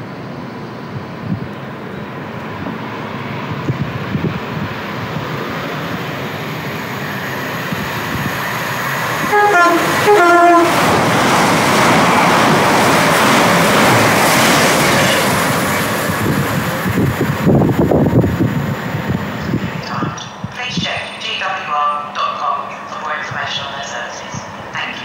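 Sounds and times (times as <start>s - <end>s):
passenger train running: 0.0s - 25.0s
train rushing past: 0.0s - 25.0s
two-tone train horn blasts: 9.2s - 10.9s.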